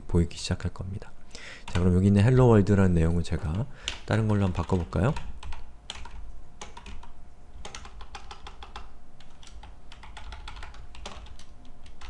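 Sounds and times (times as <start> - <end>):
typing on computer keyboard: 3.9 - 12.0.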